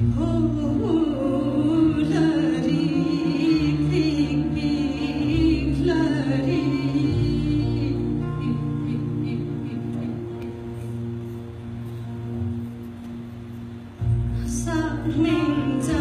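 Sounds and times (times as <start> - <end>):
woman singing: 0.0 - 10.8, 14.4 - 16.0
acoustic string band: 0.0 - 16.0.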